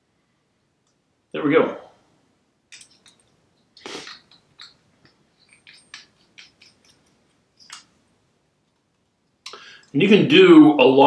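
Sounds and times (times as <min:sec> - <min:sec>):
small clicks and rustles: 0:02.7 - 0:10.0.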